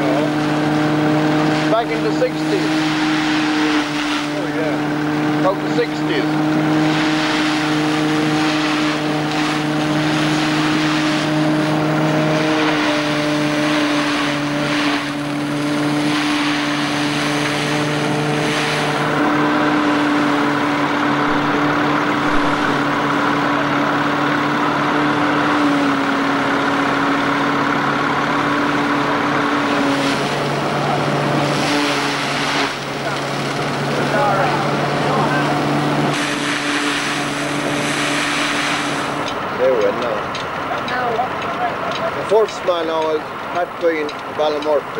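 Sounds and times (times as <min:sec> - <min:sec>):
threshing machine humming: 0:00.0 - 0:44.9.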